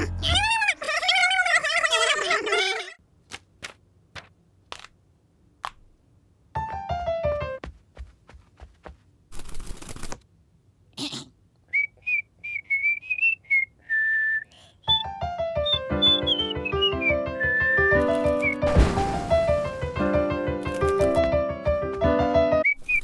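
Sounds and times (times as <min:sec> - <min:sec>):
cartoon bird whistling: 0:11.9 - 0:18.7.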